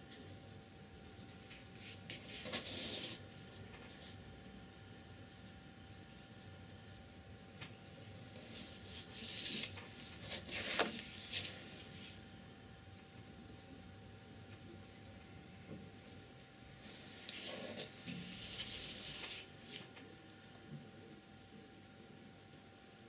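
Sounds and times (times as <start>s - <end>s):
paper rustling on a table: 1.2s - 4.2s, 5.1s - 12.2s, 16.8s - 21.2s.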